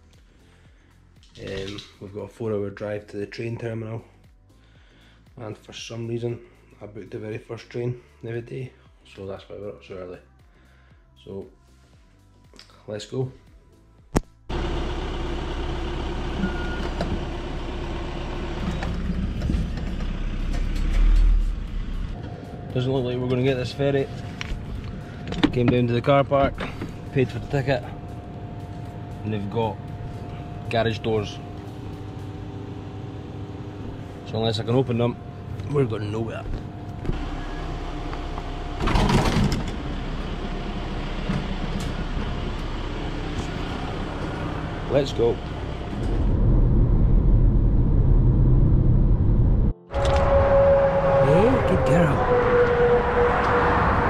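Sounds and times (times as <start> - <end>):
motorised garage door lifting: 14.5 - 46.4
car engine humming: 14.5 - 54.0
short electronic beep: 16.4 - 17.0
rush of noise: 45.9 - 54.0.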